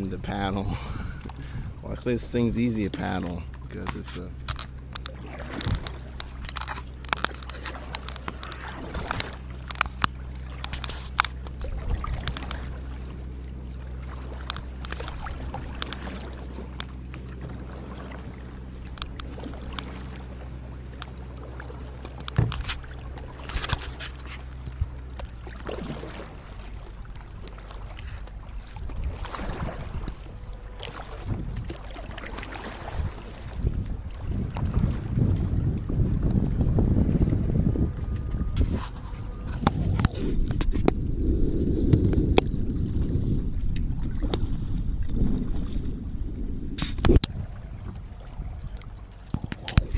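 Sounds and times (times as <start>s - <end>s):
low rumble: 0.0s - 49.9s
paddle splashing in water: 0.0s - 49.9s
paddle knocking against hull: 3.0s - 12.7s, 14.1s - 41.0s, 46.8s - 49.9s.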